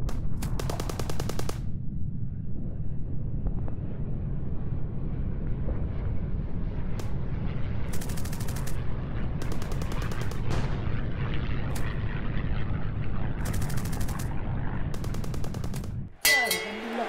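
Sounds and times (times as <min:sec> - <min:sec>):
low rumble of battle: 0:00.0 - 0:16.2
machine-gun fire: 0:00.1 - 0:01.7, 0:07.9 - 0:08.8, 0:09.4 - 0:11.1, 0:13.4 - 0:14.3, 0:15.0 - 0:16.1.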